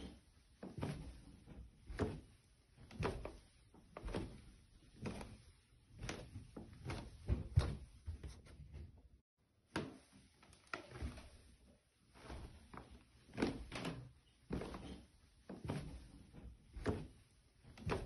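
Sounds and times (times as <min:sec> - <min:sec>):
footsteps on stairs: 0:06.0 - 0:09.1.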